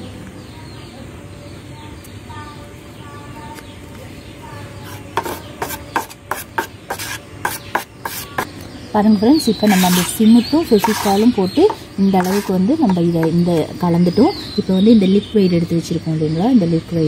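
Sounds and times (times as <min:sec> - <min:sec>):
putty knife scraping a steel bowl: 0:04.8 - 0:08.5, 0:09.6 - 0:13.4.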